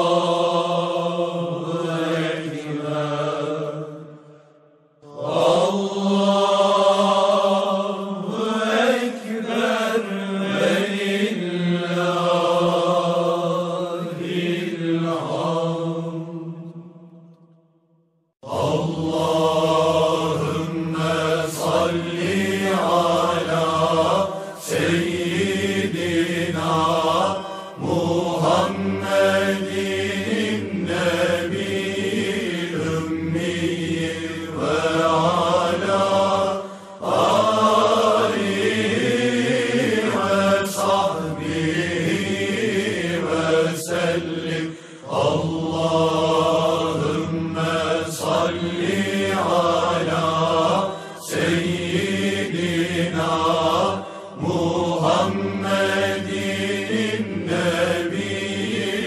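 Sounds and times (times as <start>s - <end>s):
religious chanting voices: 0.0s - 17.6s, 18.4s - 59.0s.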